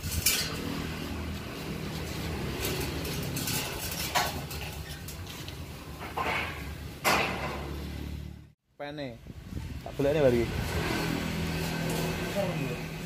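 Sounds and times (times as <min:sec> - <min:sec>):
metal truss sections clanking: 0:02.1 - 0:05.2.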